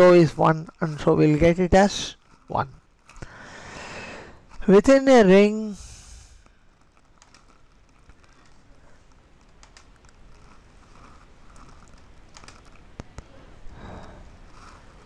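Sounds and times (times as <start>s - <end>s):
low background hiss: 0.0s - 15.0s
computer mouse clicks: 7.0s - 8.6s, 9.4s - 13.3s.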